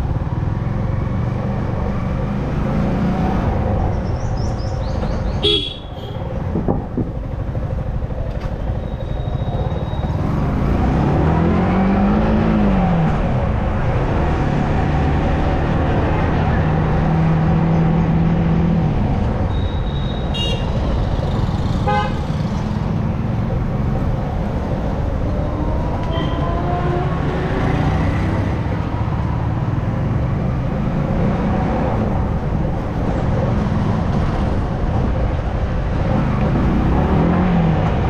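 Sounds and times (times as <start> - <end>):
motorcycle engine revving: 9.3 - 13.2.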